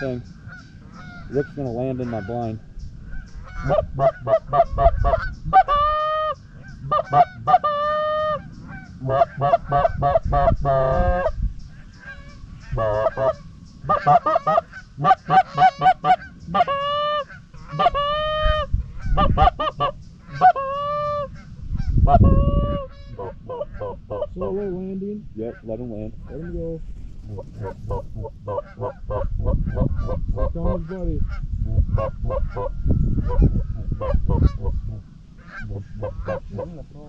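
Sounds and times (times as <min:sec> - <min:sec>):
goose honks and clucks: 0:00.0 - 0:37.0.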